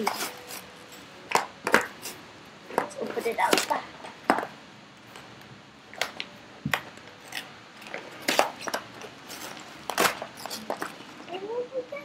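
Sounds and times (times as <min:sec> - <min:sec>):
plastic packaging crinkling: 0:00.0 - 0:02.2, 0:06.0 - 0:11.3.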